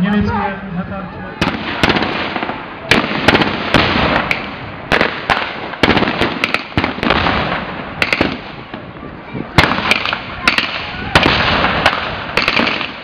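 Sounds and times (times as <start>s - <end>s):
pyrotechnic explosions: 1.4s - 13.0s
blank gunfire: 9.6s - 13.0s.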